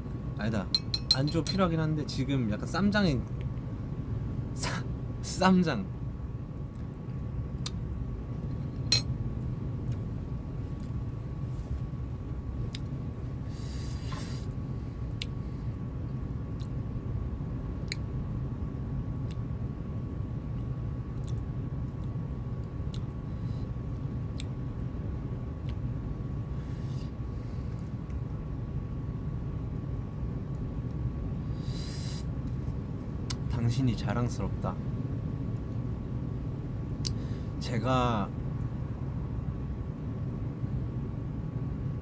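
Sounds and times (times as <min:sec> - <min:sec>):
faint constant tone: 0:00.0 - 0:42.0
low room hum: 0:00.0 - 0:42.0
chopsticks clinking dishes: 0:00.7 - 0:01.6.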